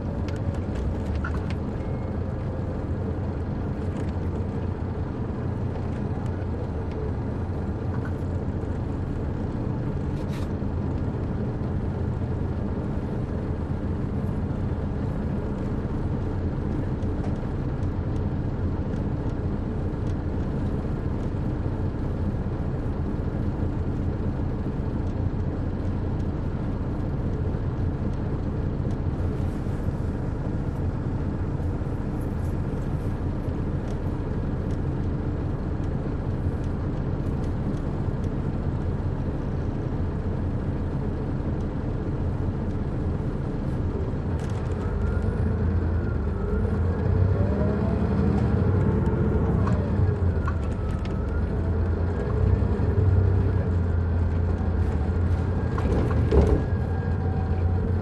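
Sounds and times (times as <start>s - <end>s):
diesel bus engine drone: 0.0s - 58.0s.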